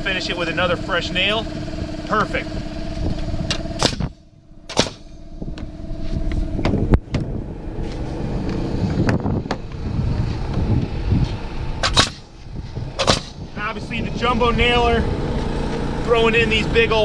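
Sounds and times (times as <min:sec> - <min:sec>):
low rumble: 0:00.0 - 0:17.0
steady hum: 0:00.0 - 0:17.0
nail gun shots: 0:03.8 - 0:04.1, 0:04.7 - 0:05.1, 0:11.8 - 0:12.3, 0:13.0 - 0:13.4.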